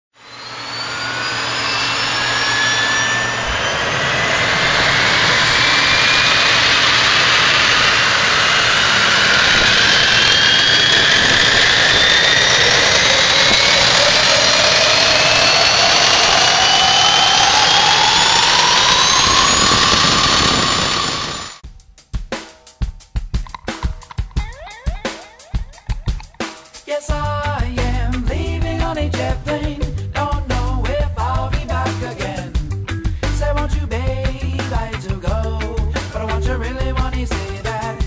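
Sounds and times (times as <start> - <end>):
jet engine spooling up: 0.1 - 21.6.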